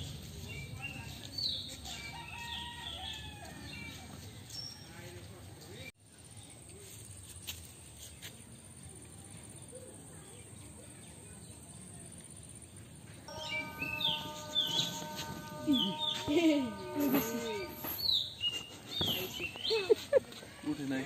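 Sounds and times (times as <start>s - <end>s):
steady tone at several pitches: 13.3s - 18.4s
birds chirping: 13.3s - 21.0s.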